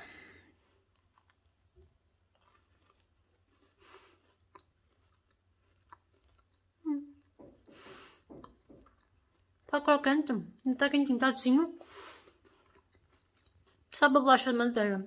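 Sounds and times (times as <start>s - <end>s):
person chewing crunchy cookie: 0.1s - 9.8s, 11.8s - 14.1s.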